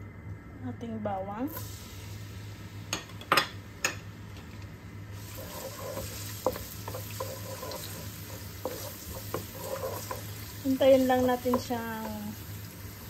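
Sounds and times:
garlic sizzling in oil: 0:01.5 - 0:04.4, 0:05.0 - 0:13.0
wooden spatula scraping pan: 0:05.2 - 0:12.3.

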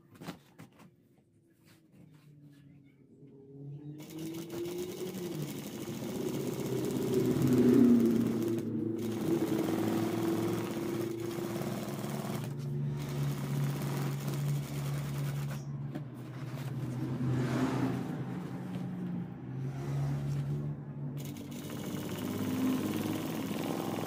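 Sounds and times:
sewing machine stitching: 0:04.0 - 0:15.8, 0:21.2 - 0:24.0.

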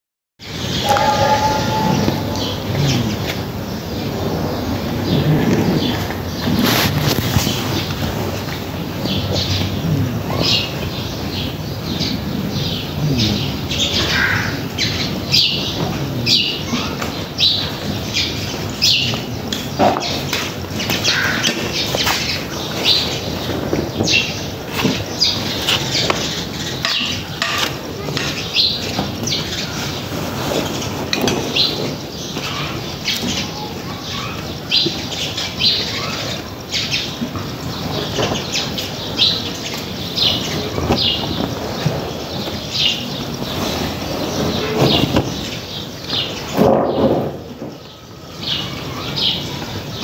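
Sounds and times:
birds chirping: 0:00.4 - 0:50.0
low murmur: 0:00.5 - 0:20.8.

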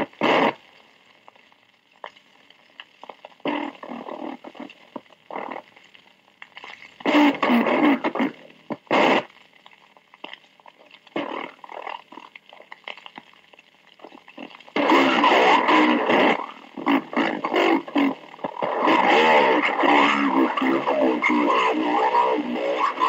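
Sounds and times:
slowed radio voices: 0:00.0 - 0:00.7, 0:03.1 - 0:05.7, 0:07.0 - 0:09.6, 0:11.0 - 0:12.2, 0:14.0 - 0:23.0
radio hiss: 0:00.0 - 0:12.8, 0:13.6 - 0:23.0
faint steady radio tones: 0:00.0 - 0:23.0.

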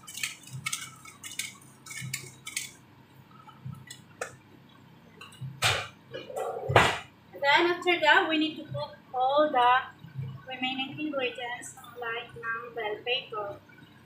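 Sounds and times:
low steady hum: 0:00.0 - 0:14.0
loud knocks: 0:06.7 - 0:07.1.

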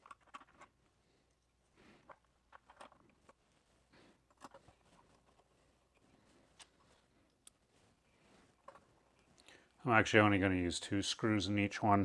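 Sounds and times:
small clicks and scrapes of screws: 0:00.0 - 0:03.4, 0:04.2 - 0:07.6, 0:08.5 - 0:09.5.

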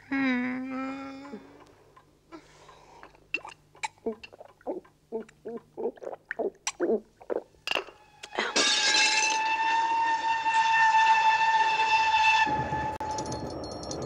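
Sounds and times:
person gulping: 0:03.0 - 0:07.6
hissing rush with whistle: 0:09.4 - 0:13.4.

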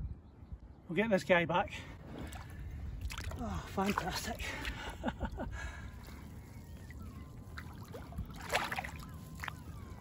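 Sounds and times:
shallow water sloshing: 0:02.0 - 0:10.0
sharp water splash: 0:07.6 - 0:09.6.

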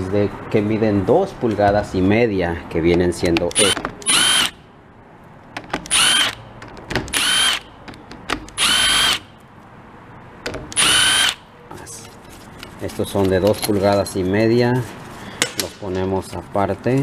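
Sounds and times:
power driver motor whine: 0:10.8 - 0:11.4.

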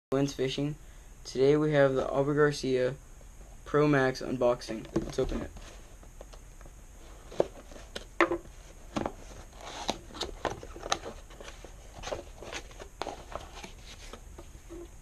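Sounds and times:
cardboard clicks and crinkles: 0:08.9 - 0:14.9.

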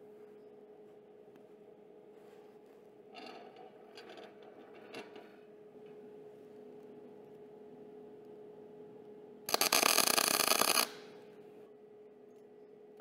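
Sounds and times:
welding arc crackling: 0:09.5 - 0:11.2.

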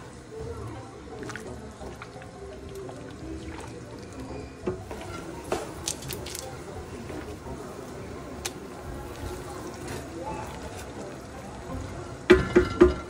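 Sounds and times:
spatula stirring sauce in pot: 0:01.0 - 0:05.8.

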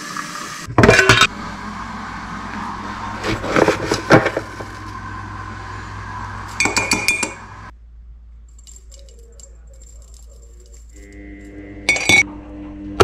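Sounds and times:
teaspoon clinking against mug: 0:06.6 - 0:07.4.

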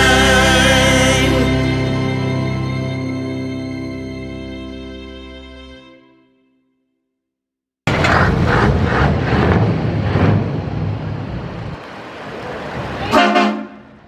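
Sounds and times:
heavy vehicle engine: 0:07.9 - 0:14.0
short loud horn blast: 0:13.1 - 0:13.8.

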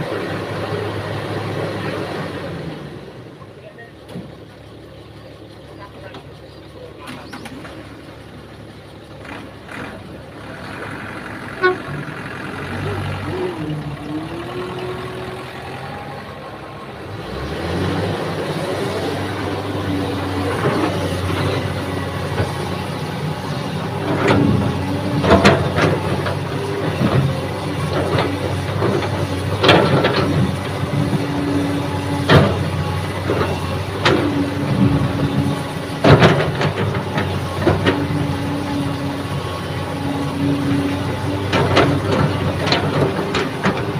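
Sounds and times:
excavator diesel engine running: 0:00.0 - 0:43.9.

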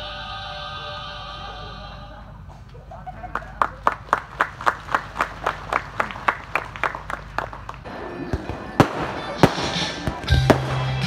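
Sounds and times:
faint crowd applause: 0:03.3 - 0:07.9.

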